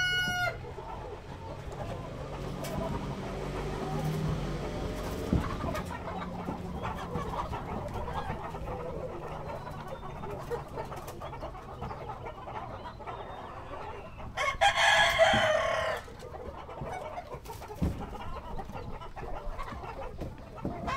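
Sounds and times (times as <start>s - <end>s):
rooster crowing: 0.0s - 0.6s, 14.4s - 16.1s
chickens clucking: 0.0s - 20.9s.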